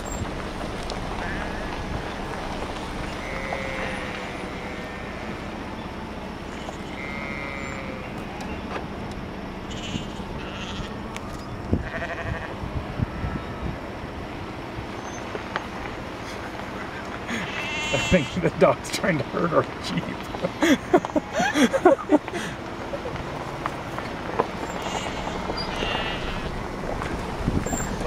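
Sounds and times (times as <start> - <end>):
jeep engine running: 0.0 - 28.0
sheep bleating: 3.1 - 5.5, 6.5 - 8.2, 9.6 - 11.0, 11.8 - 12.6, 17.3 - 18.6, 24.6 - 26.6.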